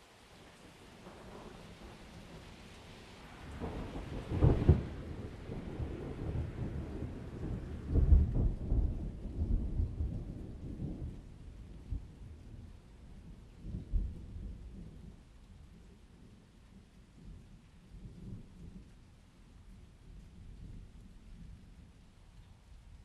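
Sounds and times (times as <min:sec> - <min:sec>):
thunder rumbling: 0:03.4 - 0:15.2.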